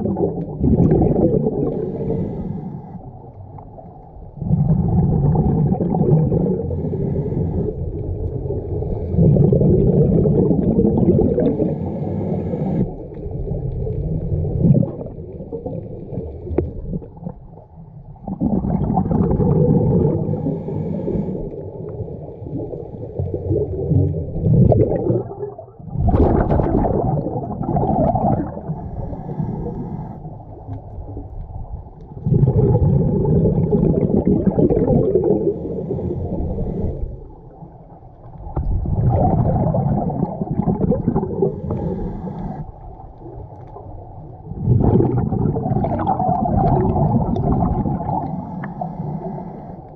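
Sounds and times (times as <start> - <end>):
exhaled bubbles gurgling underwater: 0.0 - 49.9
diver drawing breath: 1.7 - 3.1, 6.6 - 7.9, 11.5 - 13.0, 20.2 - 21.6, 28.7 - 30.3, 35.2 - 37.3, 41.4 - 42.7, 48.2 - 49.9.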